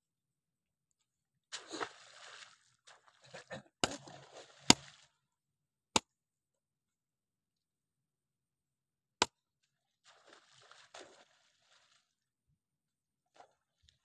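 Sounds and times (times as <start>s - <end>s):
shovel scraping wet mud: 1.5s - 5.1s.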